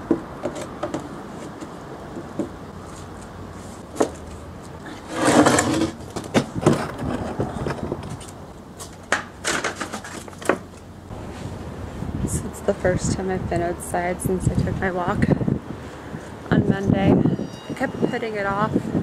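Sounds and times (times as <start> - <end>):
plastic table scraping on bricks: 5.0 - 8.2.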